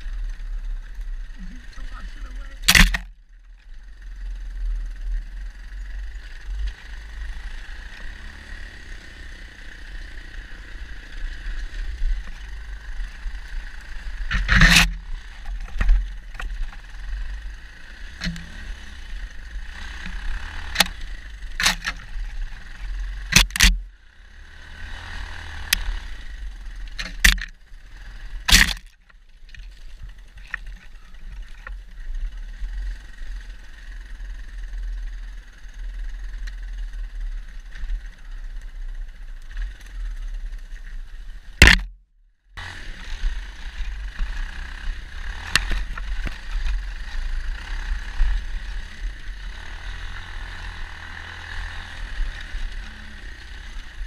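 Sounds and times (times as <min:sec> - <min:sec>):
dirt bike engine: 0:00.0 - 0:54.0
sharp knocks and cracks: 0:02.6 - 0:03.1, 0:21.6 - 0:22.1, 0:23.3 - 0:23.8, 0:27.0 - 0:27.5, 0:28.5 - 0:29.7, 0:41.6 - 0:42.0.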